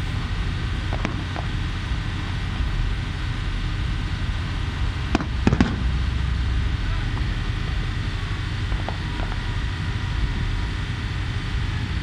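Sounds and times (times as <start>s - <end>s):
steady low rumble: 0.0s - 12.0s
fireworks bursting: 4.9s - 6.7s.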